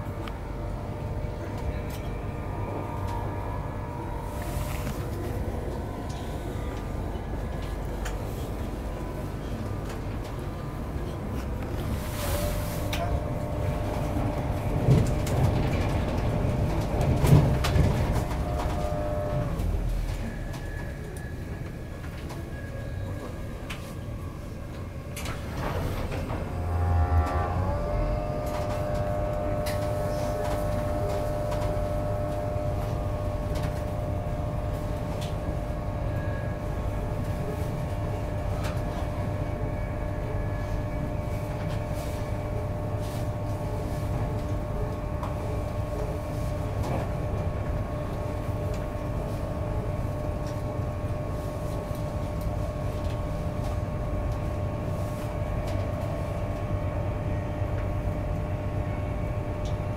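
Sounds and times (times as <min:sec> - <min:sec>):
train wheels rumbling on track: 0:00.0 - 0:50.8
whine sliding down in pitch: 0:26.4 - 0:29.8.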